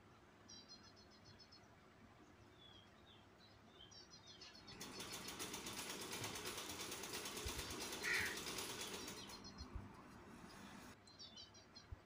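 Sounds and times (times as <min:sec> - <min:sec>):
ratcheting rattle of small clicks: 0:04.7 - 0:09.5.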